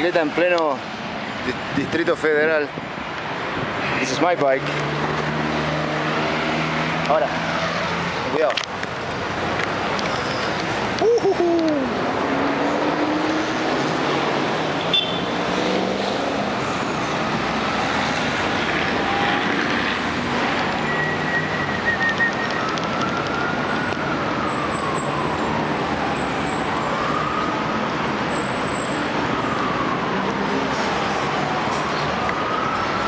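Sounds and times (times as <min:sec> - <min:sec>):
city road traffic: 0:00.0 - 0:33.0
siren wailing: 0:18.5 - 0:33.0.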